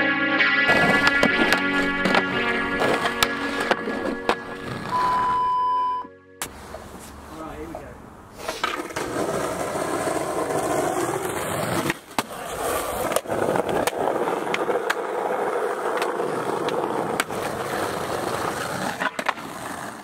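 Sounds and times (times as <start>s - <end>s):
skateboard clacks: 0.7s - 4.9s, 8.4s - 20.0s
skateboard wheels rolling: 0.7s - 5.5s, 6.4s - 7.4s, 8.2s - 20.0s.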